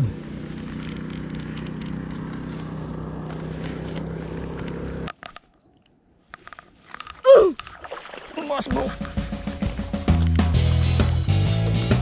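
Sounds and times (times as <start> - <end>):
small engine humming: 0.0 - 5.1.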